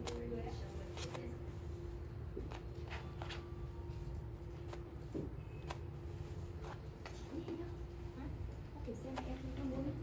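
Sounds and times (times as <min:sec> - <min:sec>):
hair bundles rustling and swishing: 0:00.0 - 0:10.0.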